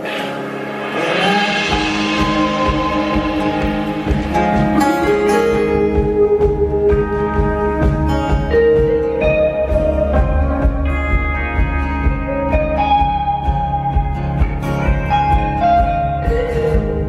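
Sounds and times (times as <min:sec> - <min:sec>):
cymbal crash: 0:00.0 - 0:05.9
electric guitars: 0:00.0 - 0:17.0
rock band playing: 0:00.0 - 0:17.0.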